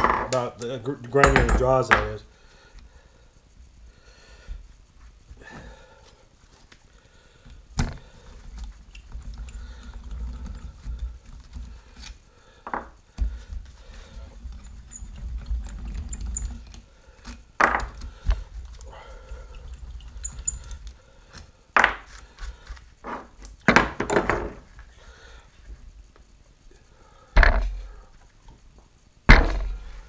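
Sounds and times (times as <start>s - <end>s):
metal clanks and knocks: 17.6s - 18.2s, 23.0s - 24.7s, 27.4s - 27.9s, 29.3s - 29.9s.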